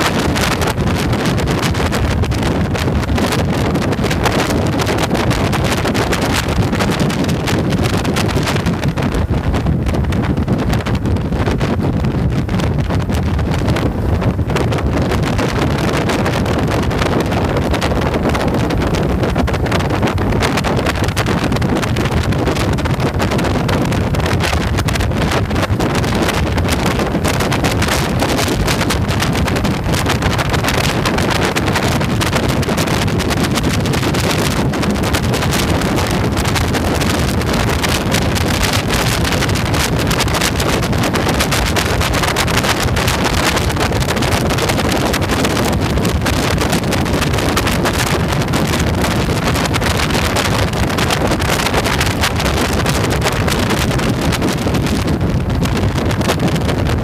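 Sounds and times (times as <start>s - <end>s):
wind buffeting microphone: 0.0s - 57.0s.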